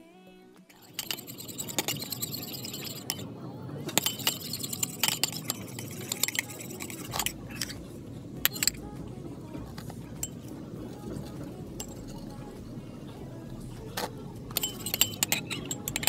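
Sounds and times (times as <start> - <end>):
metal utensil clinking on ceramic bowl: 0.8 - 3.2, 3.9 - 7.8, 8.5 - 8.8, 9.8 - 12.7, 13.9 - 16.0.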